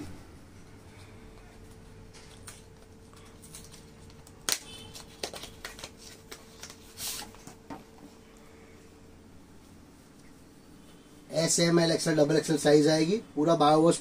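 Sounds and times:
packaging rustling: 0:02.3 - 0:07.6.

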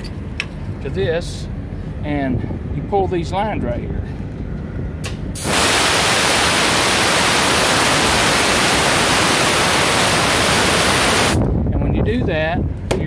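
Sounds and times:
compressed air hissing: 0:05.4 - 0:11.4.

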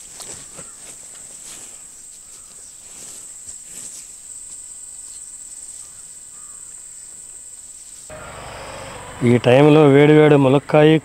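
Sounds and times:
hands rustling on banana leaf: 0:00.0 - 0:05.2
insects trilling: 0:00.0 - 0:11.0.

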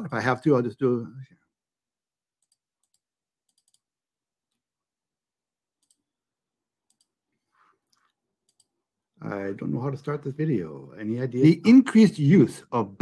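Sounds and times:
computer clicks: 0:02.4 - 0:03.9, 0:05.8 - 0:06.0, 0:06.9 - 0:07.2, 0:07.9 - 0:08.7.

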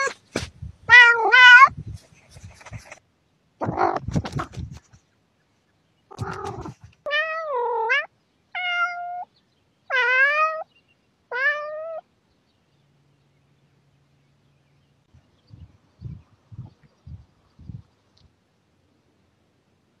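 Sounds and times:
rustling: 0:00.0 - 0:03.0, 0:03.6 - 0:05.2, 0:06.1 - 0:07.1
cat meowing: 0:00.9 - 0:01.8, 0:06.1 - 0:09.3, 0:09.9 - 0:10.7, 0:11.3 - 0:12.0.

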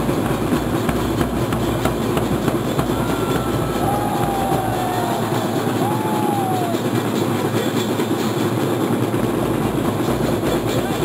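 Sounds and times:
marching band drums: 0:00.0 - 0:11.0.

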